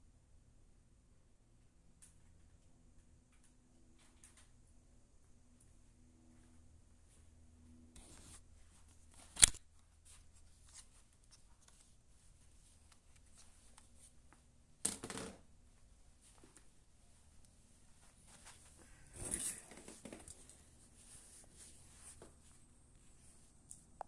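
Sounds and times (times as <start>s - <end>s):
sharp click: 9.3s - 9.6s.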